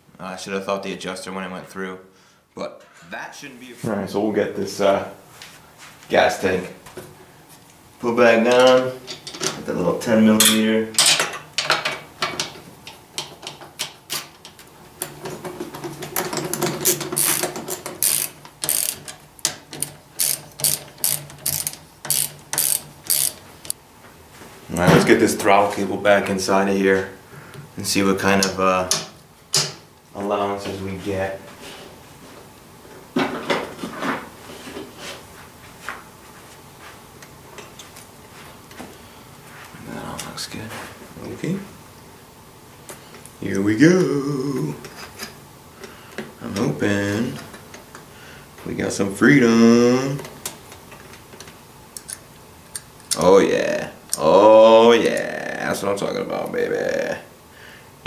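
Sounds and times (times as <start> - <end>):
socket ratchet clicking: 16.8 - 23.8.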